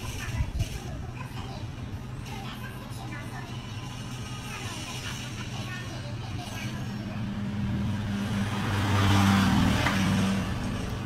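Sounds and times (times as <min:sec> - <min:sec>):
vehicle engine hum passing: 0:06.0 - 0:11.0.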